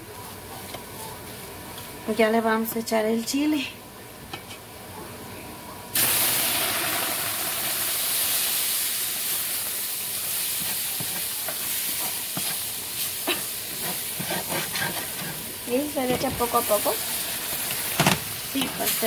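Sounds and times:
sauce sizzling in a hot pot: 5.9s - 19.0s.

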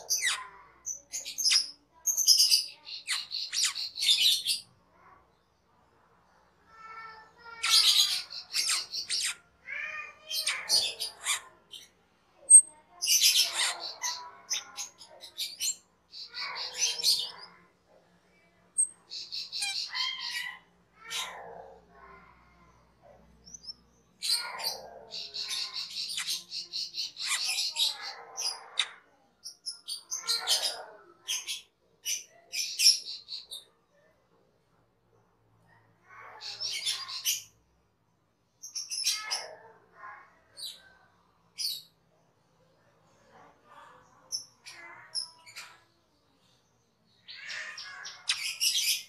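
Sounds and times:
starling chattering song: 0.0s - 5.2s, 6.7s - 33.7s, 36.2s - 37.6s, 47.0s - 49.0s.

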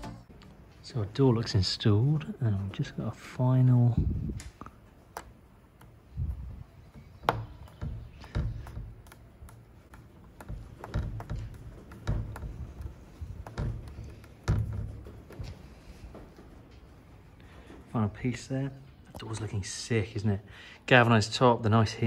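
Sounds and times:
hands clicking and knocking parts: 4.4s - 17.9s.

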